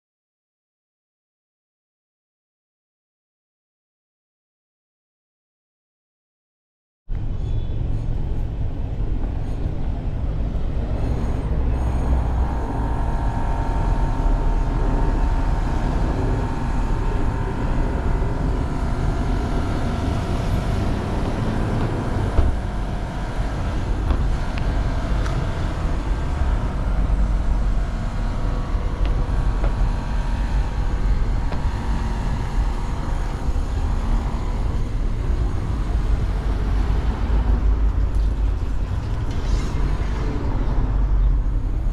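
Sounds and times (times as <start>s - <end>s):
low traffic rumble: 7.1s - 41.9s
cars passing: 7.7s - 41.9s.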